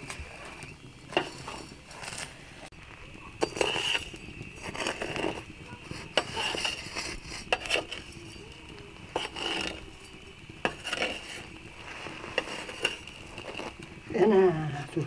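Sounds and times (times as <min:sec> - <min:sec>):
corn scraping in ash and grit: 0:00.0 - 0:15.0
skimmer and paddle clinking on pan: 0:00.6 - 0:02.3, 0:03.4 - 0:11.5, 0:12.3 - 0:13.8.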